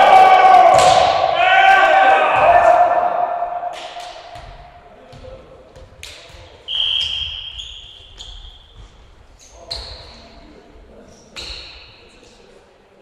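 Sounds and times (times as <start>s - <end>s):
referee's whistle: 6.7s - 8.6s.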